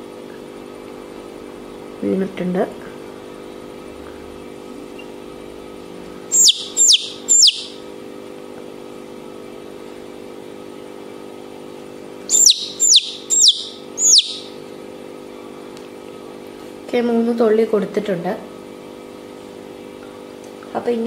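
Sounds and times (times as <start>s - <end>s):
chick peeping loudly: 6.3s - 7.8s, 12.3s - 14.6s.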